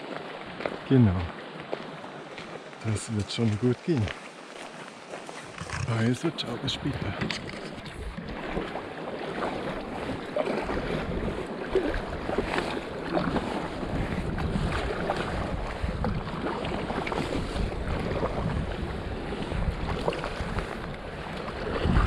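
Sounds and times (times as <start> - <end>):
fast river water rushing: 0.0 - 22.0
paddle splashes: 0.0 - 22.0
wind rumbling on microphone: 5.4 - 22.0.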